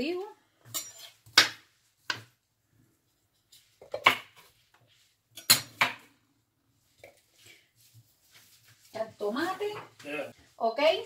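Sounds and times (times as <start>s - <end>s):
kitchen utensils clinking: 0.6s - 1.6s.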